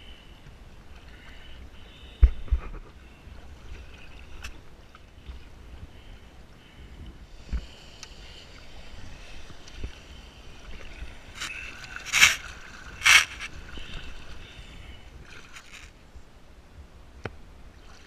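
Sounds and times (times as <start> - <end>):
hiss of moving water: 6.0 - 15.8
paddle splashes: 9.1 - 15.9.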